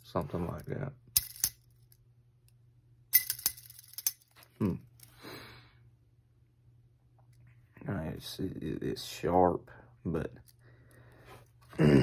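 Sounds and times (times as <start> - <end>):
metallic clicks and clinks: 1.2 - 2.0, 3.1 - 4.5
person humming: 4.6 - 4.9, 11.7 - 12.0
person exhaling: 4.6 - 5.8.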